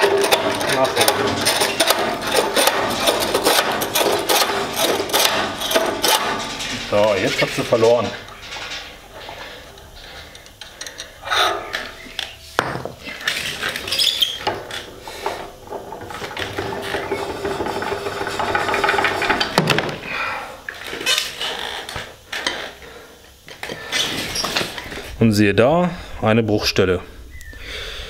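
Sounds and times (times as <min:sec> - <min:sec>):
metal shaft scraping through bearings: 0:00.0 - 0:19.6.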